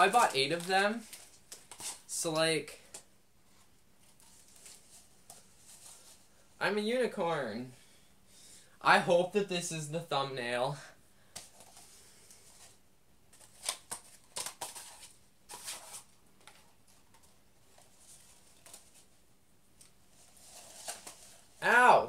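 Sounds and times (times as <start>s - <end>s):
cardboard party hats rustling: 0.0s - 2.5s, 3.4s - 6.6s, 11.3s - 19.2s, 19.9s - 22.0s.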